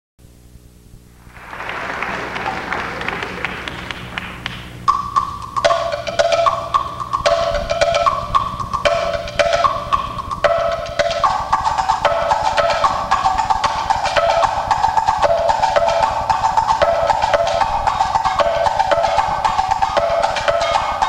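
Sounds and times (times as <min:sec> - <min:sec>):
audience applause: 0:01.2 - 0:04.8
percussion ensemble playing: 0:01.2 - 0:21.0.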